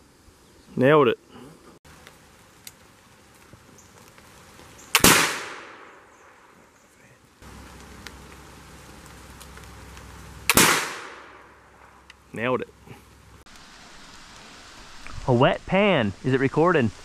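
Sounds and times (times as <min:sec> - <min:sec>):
rifle shots with echo: 0:05.0 - 0:06.0, 0:10.5 - 0:11.4.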